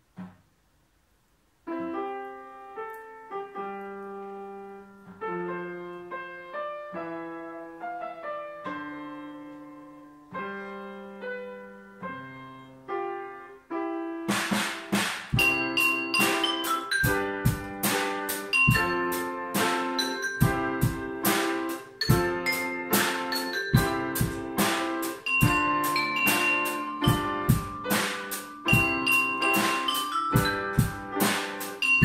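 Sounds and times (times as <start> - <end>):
slow piano ballad chords: 1.7 - 32.0
drum kit with cymbals: 14.3 - 32.0.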